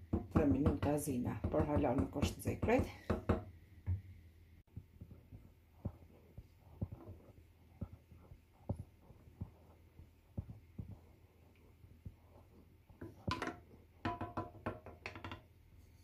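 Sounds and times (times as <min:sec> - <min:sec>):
wooden spoon knocking a metal pan: 0:13.0 - 0:15.5.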